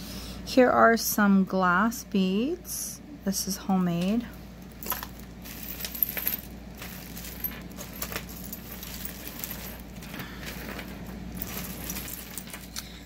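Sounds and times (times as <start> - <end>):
jewelry clinking and jangling: 4.6 - 13.0.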